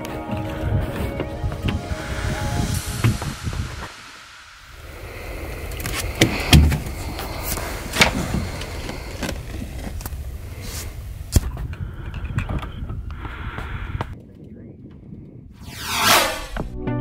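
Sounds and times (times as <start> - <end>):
wind: 0.0 - 16.8.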